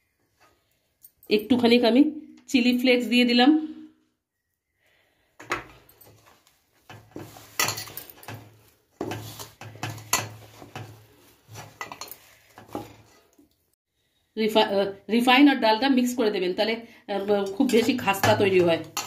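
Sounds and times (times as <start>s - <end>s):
dough kneaded in steel bowl: 5.6s - 13.8s, 17.1s - 19.0s.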